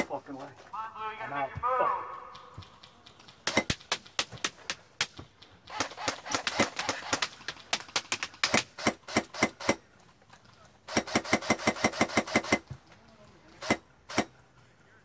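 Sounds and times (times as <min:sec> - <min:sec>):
airsoft guns firing: 0:01.7 - 0:09.9, 0:10.8 - 0:12.7, 0:13.5 - 0:14.4.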